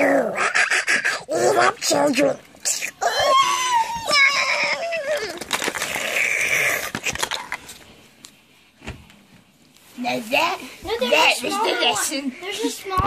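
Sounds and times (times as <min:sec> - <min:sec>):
child wailing: 0:03.0 - 0:05.4.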